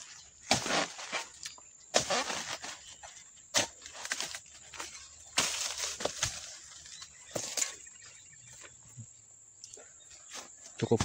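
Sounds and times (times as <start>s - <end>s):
chisel chopping palm stalks: 0.4s - 2.8s, 3.5s - 6.6s.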